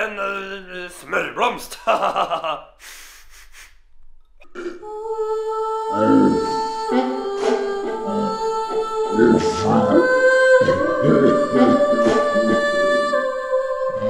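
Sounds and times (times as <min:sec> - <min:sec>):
person sniffing: 0:02.8 - 0:03.8
person humming: 0:04.4 - 0:14.0.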